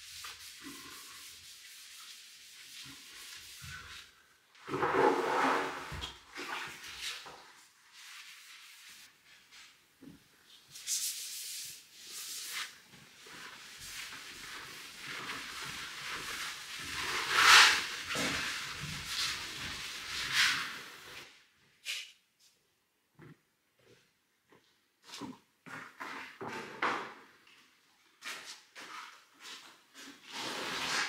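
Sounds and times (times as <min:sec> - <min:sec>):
cloth scrubbing a wall: 0:00.0 - 0:09.7, 0:10.7 - 0:21.3.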